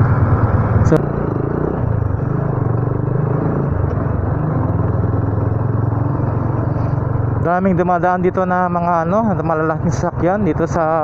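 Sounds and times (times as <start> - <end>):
motorcycle engine running: 0.0 - 11.0
road noise: 0.0 - 11.0.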